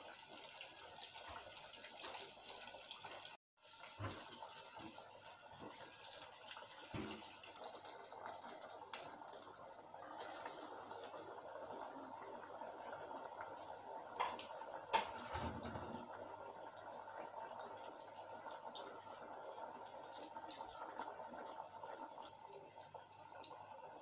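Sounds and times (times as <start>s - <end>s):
oil sizzling and crackling: 0.0s - 12.0s.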